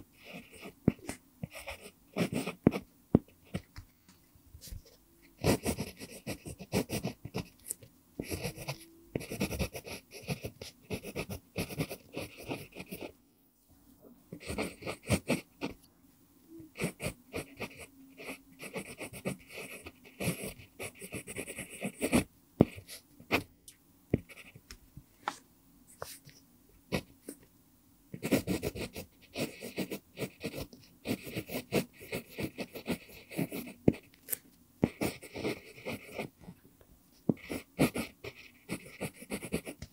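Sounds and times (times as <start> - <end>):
pencil scratching on paper: 0.0 - 3.6, 4.6 - 13.2, 14.4 - 15.8, 16.7 - 23.5, 24.2 - 24.6, 26.9 - 27.4, 28.2 - 34.2, 34.8 - 36.4, 37.2 - 39.8.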